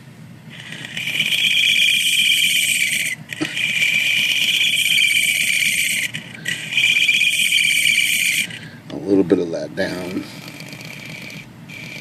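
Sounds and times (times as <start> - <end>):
knife scraping plastic squeal: 0.5 - 8.8.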